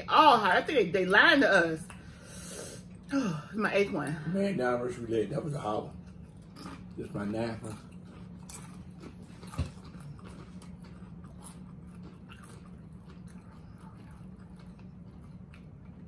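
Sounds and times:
chips being chewed: 5.9 - 16.0.

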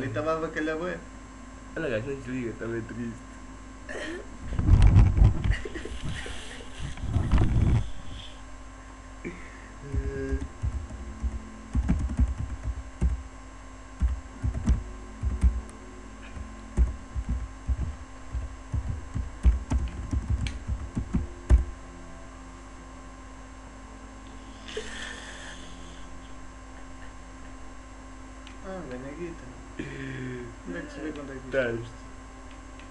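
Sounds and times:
steady electrical hum: 0.0 - 32.9
keyboard typing: 10.2 - 13.2, 14.0 - 21.7.

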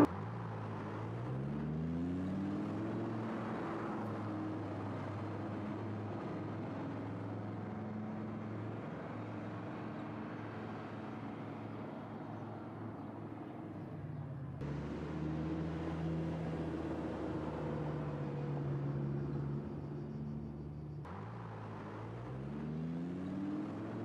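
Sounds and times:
car engine at low revs: 0.0 - 4.3, 14.0 - 24.0.

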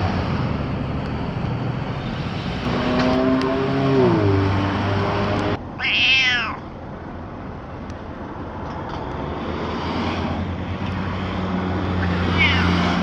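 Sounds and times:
street background noise: 0.0 - 13.0
cat meowing: 5.8 - 6.7, 12.0 - 12.9.

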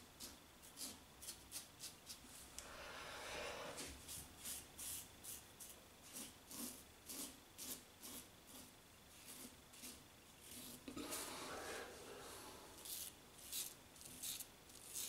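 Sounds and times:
razor scraping through stubble: 6.1 - 11.3, 12.8 - 15.0.

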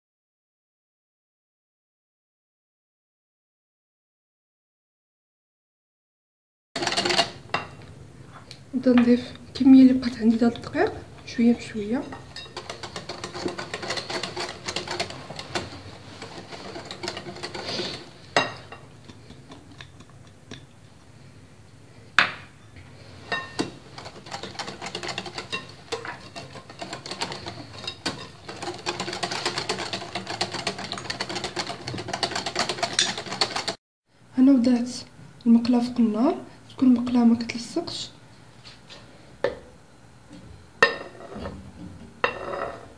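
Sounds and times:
whisk clicking against glass bowl: 12.0 - 20.7, 23.4 - 33.8.

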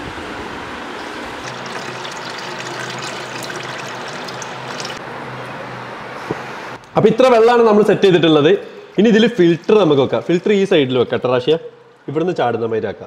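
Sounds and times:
water trickling into aquarium: 1.2 - 5.0, 9.0 - 10.9.

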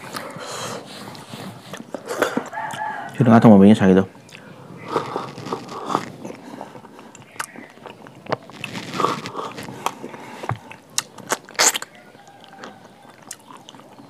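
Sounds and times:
person chewing crunchy food: 0.0 - 3.2, 4.2 - 14.0
mouth clicks: 4.2 - 14.0.

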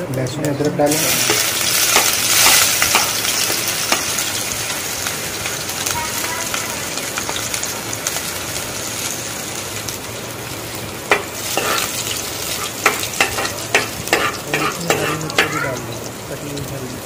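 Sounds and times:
spices sizzling in hot oil: 0.0 - 17.0
metal spoon scraping pan: 11.1 - 15.6.

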